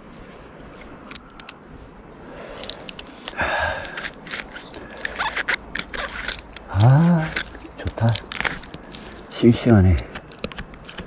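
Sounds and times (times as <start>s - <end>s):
scraping and rustling on tree trunk: 0.0s - 11.0s
climbing gear jingling: 2.5s - 11.0s.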